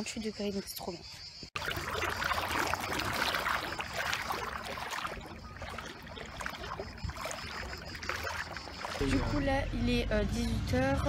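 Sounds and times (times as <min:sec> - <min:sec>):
foot splashing in shallow water: 0:01.6 - 0:09.5.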